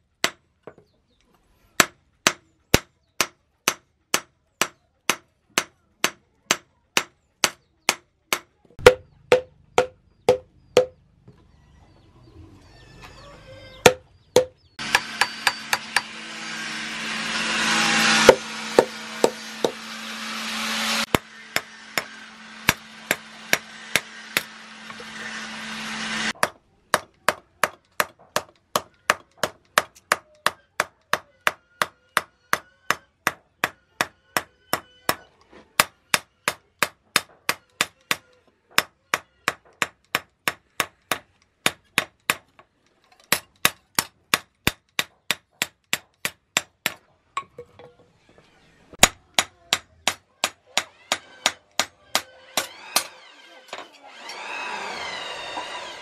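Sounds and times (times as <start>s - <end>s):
hammer striking metal on anvil: 3.2s - 11.0s, 13.8s - 16.2s, 18.2s - 20.0s, 21.0s - 25.6s.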